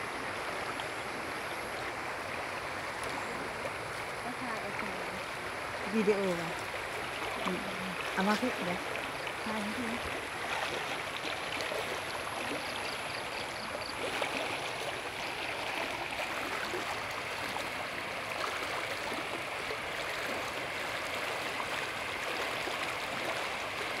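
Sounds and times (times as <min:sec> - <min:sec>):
water flowing over bank: 0:00.0 - 0:24.0.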